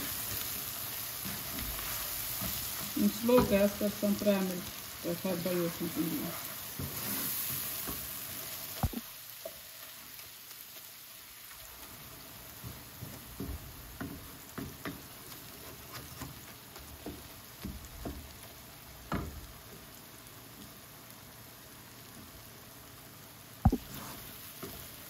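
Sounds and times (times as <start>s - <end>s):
vegetables sizzling in a pan: 0.0s - 25.0s
wooden spatula knocking pan: 1.3s - 3.8s, 12.6s - 18.3s.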